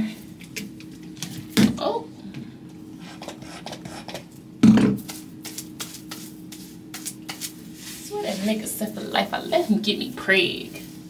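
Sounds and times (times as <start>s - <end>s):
hair rustling: 5.0s - 11.0s.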